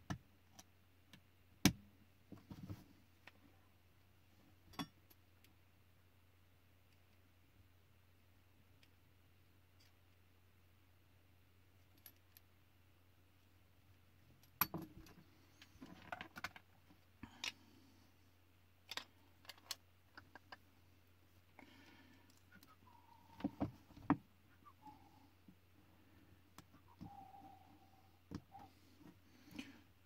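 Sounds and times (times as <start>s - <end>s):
low steady hum: 0.0s - 30.0s.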